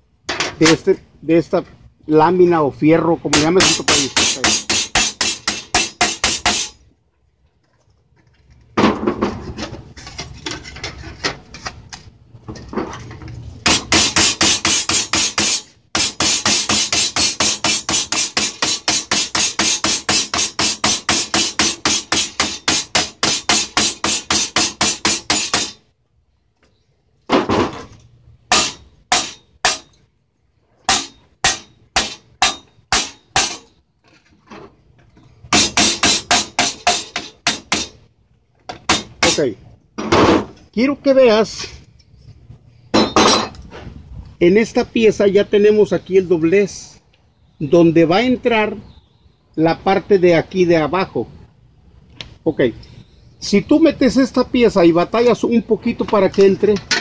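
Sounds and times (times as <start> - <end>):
hammer striking sheet steel: 3.3 - 6.8, 13.6 - 25.8, 28.5 - 30.0, 30.9 - 33.7, 35.5 - 38.0, 38.7 - 39.5
metal scraping: 3.3 - 6.8, 9.1 - 25.8, 27.6 - 30.0, 30.6 - 34.8.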